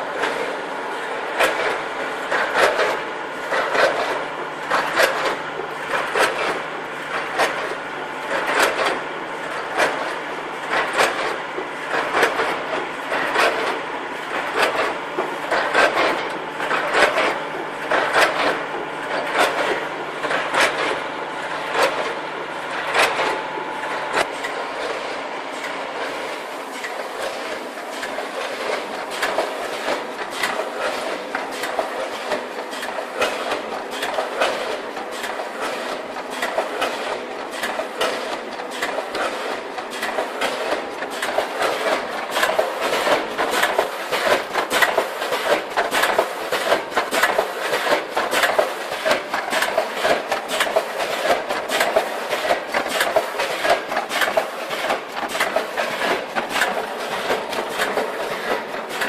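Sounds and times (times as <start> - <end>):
packaging machine clattering: 37.8 - 59.0.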